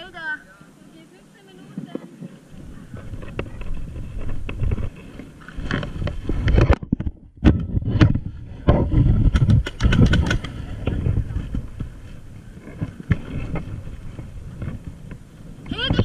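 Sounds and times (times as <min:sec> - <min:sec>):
wind noise: 0:00.0 - 0:16.0
camera handling rumble: 0:01.8 - 0:15.3
sharp clicks and knocks: 0:05.7 - 0:11.0.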